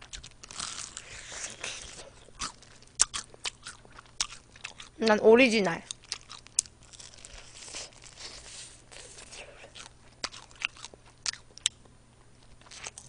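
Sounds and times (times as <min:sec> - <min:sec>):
crunching and chewing fried chicken: 0:00.0 - 0:05.0, 0:05.8 - 0:13.0
sharp crackles of fried skin: 0:00.0 - 0:05.0, 0:05.9 - 0:11.8.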